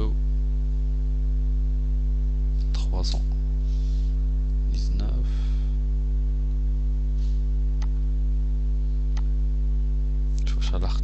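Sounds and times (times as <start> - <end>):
electrical mains hum: 0.0 - 11.0
click: 7.8 - 8.0.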